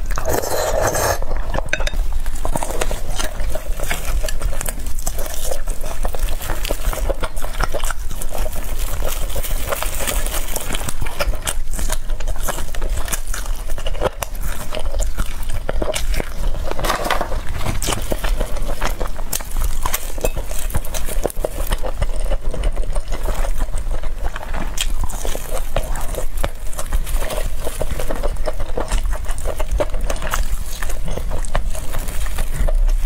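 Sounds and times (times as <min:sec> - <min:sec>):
chewing: 0:00.0 - 0:33.0
crispy fried chicken crackling: 0:01.4 - 0:33.0.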